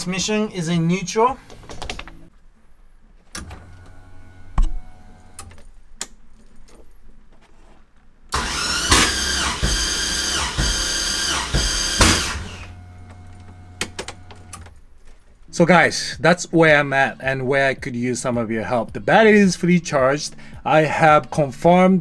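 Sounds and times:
low electrical hum: 0.0 - 21.5
engine cranking slowly on starter: 8.3 - 12.7.

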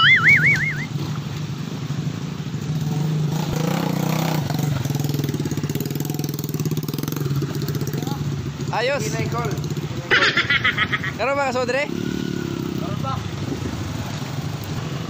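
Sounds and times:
warbling whistle-like tone: 0.0 - 1.0
dirt bike engine revving: 2.7 - 15.0.

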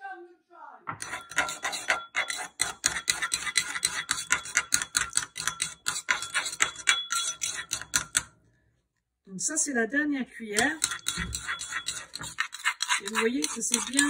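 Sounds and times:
metal spoon clinking against bowl: 1.0 - 8.3, 10.6 - 14.0.

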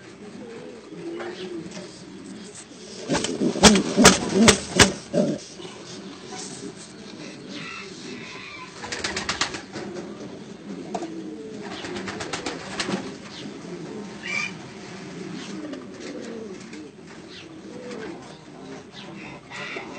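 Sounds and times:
pigeon cooing: 0.0 - 19.9
rapid sharp clicks: 3.1 - 5.1.

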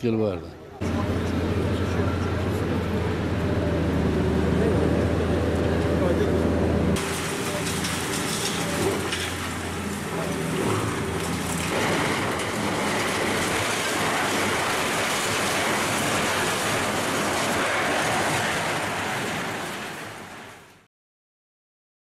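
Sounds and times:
diesel engine hum: 0.8 - 20.4
concrete debris crumbling and falling: 7.0 - 20.6.

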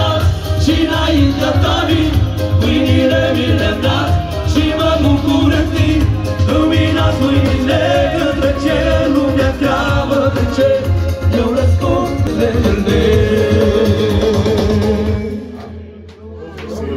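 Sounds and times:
keyboard accompaniment: 0.0 - 16.1
men's choir singing: 0.0 - 16.9
steady low beat: 0.2 - 15.7.

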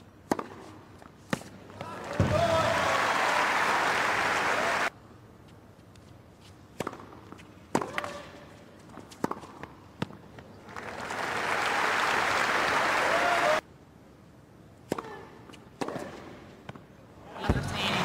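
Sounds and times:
crowd applauding: 2.0 - 4.9, 10.7 - 13.6
tennis racket striking ball: 6.8 - 8.2.

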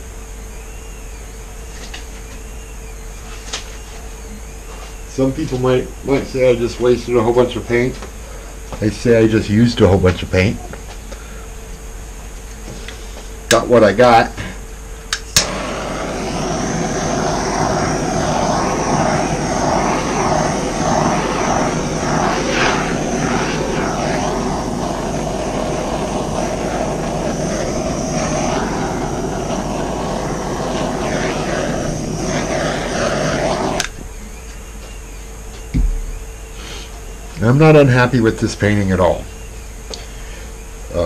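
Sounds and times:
heat gun blowing air: 15.1 - 34.0.

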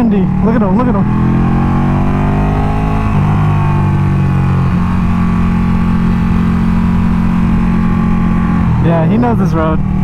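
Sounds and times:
motorcycle engine running hard: 0.0 - 10.0
wind noise: 1.0 - 8.8.

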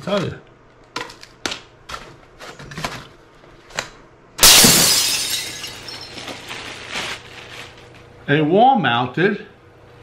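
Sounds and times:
plastic bag crinkling: 6.0 - 8.1
cardboard and paper rustling: 6.1 - 8.0.

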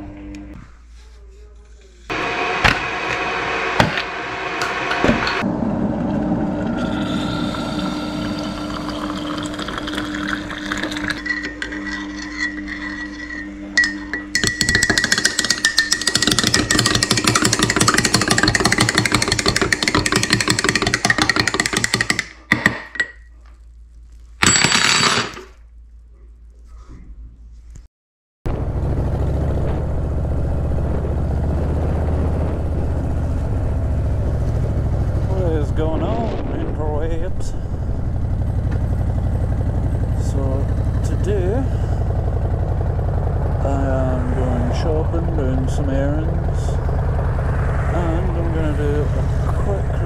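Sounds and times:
liquid pouring into mug: 6.8 - 13.1
teaspoon stirring and clinking mug: 8.5 - 23.2.

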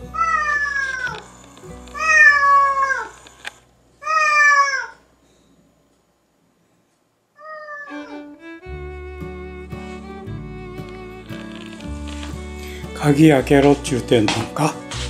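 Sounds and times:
cat meowing: 0.1 - 1.3, 1.9 - 3.2, 4.0 - 5.0, 7.4 - 8.6.

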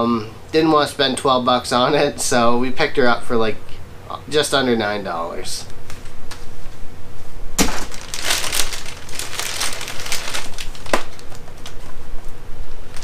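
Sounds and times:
plastic packaging crinkling: 7.6 - 12.0.

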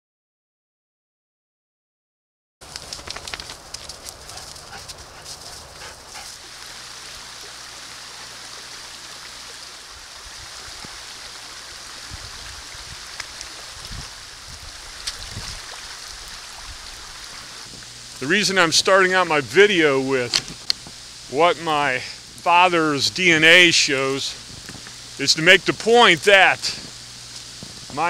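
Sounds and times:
footsteps crunching in snow: 2.6 - 6.5
creek water running: 2.6 - 28.0.

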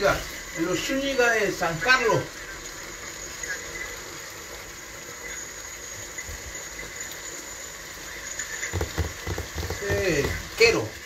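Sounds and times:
vegetables simmering in a pan: 0.0 - 11.0.

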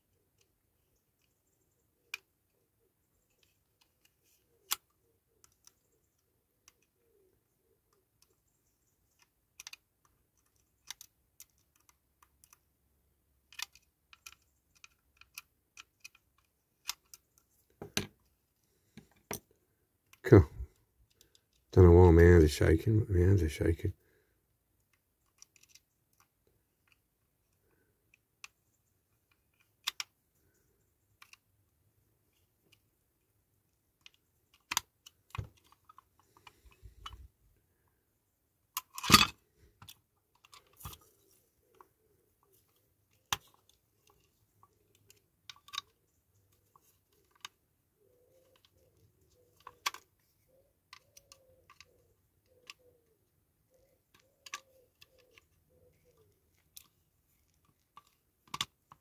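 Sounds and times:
clicks and taps of metal toy: 9.1 - 12.7, 13.4 - 18.2, 24.9 - 27.0, 29.2 - 30.6, 42.5 - 47.6, 48.4 - 50.1, 50.9 - 53.0, 53.7 - 55.5, 56.1 - 59.0.

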